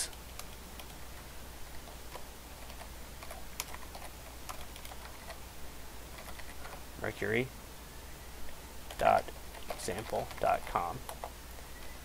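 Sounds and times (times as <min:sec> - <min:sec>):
computer keyboard typing: 0:00.0 - 0:05.4, 0:06.1 - 0:06.8, 0:08.9 - 0:11.4
low steady hum: 0:00.0 - 0:12.0.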